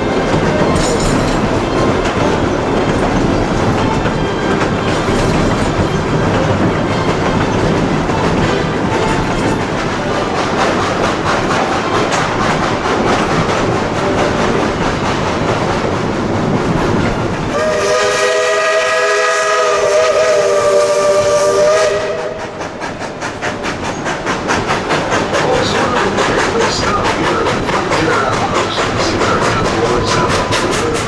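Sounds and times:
train cars rumbling and clattering: 0:00.0 - 0:31.0
steam locomotive whistle: 0:17.5 - 0:22.7.

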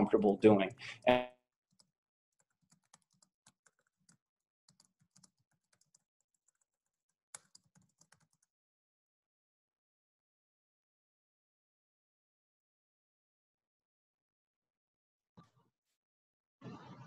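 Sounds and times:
faint keyboard typing: 0:00.7 - 0:08.5.

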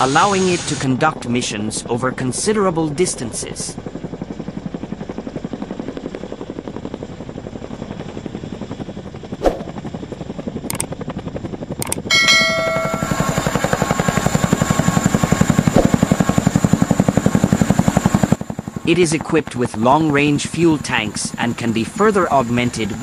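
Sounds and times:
turbine whine: 0:09.4 - 0:09.8, 0:10.7 - 0:11.0, 0:11.8 - 0:16.9
sharp click: 0:11.8 - 0:12.1
helicopter blade thumping: 0:15.6 - 0:16.1.

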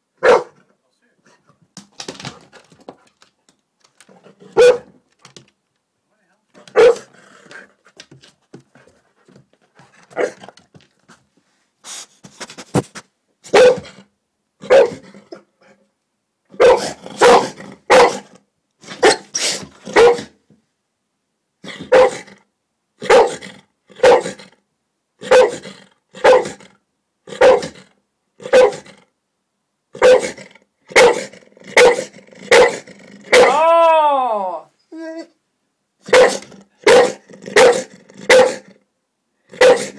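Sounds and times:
dog barking: 0:00.2 - 0:00.6, 0:04.5 - 0:05.0, 0:06.7 - 0:07.1, 0:10.1 - 0:10.4, 0:13.5 - 0:14.0, 0:14.6 - 0:15.0, 0:16.5 - 0:18.3, 0:19.0 - 0:19.3, 0:19.9 - 0:20.4, 0:21.7 - 0:22.3, 0:23.0 - 0:23.4, 0:24.0 - 0:24.4, 0:25.2 - 0:25.6, 0:26.2 - 0:26.6, 0:27.3 - 0:27.8, 0:28.4 - 0:28.9, 0:30.0 - 0:33.6, 0:36.0 - 0:38.7, 0:39.5 - 0:39.9.

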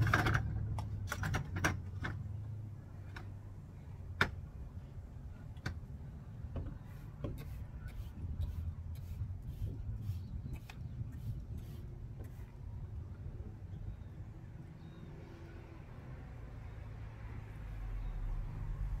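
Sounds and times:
step ladder clicks and knocks: 0:00.0 - 0:02.3.

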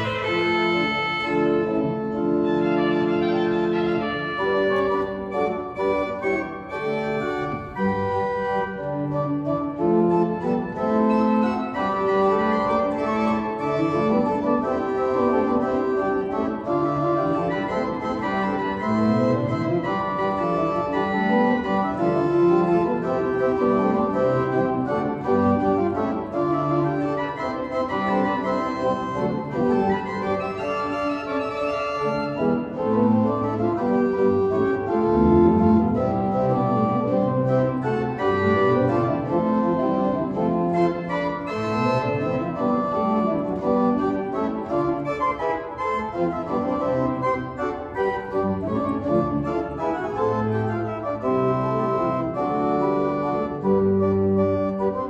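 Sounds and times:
pipe organ playing: 0:00.0 - 0:55.0.

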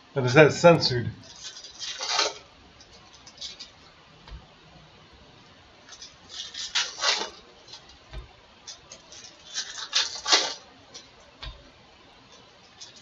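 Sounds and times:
cards rustling: 0:01.2 - 0:03.8, 0:05.9 - 0:13.0
foil wrapper crinkling: 0:01.2 - 0:03.8, 0:05.8 - 0:13.0
soft low thumps: 0:04.2 - 0:05.4.

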